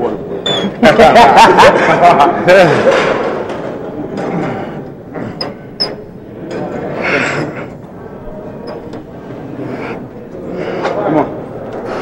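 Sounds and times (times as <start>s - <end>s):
hum of busy gym: 0.0s - 12.0s.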